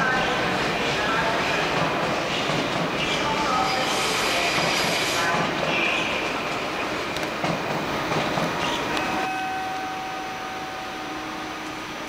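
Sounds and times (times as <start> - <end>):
train wheels rumbling over rail joints: 3.9 - 8.8
electric train hum with held tones: 8.6 - 12.0.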